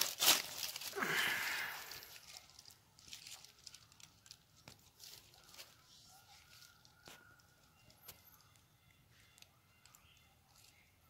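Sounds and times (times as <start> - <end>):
dry leaves rustling and crackling: 0.0 - 8.0.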